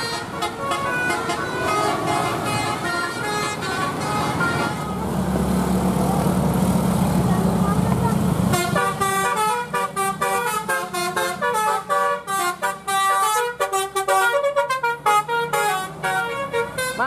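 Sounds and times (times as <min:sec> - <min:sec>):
bus horn playing melody: 0:00.0 - 0:05.1, 0:08.5 - 0:17.0.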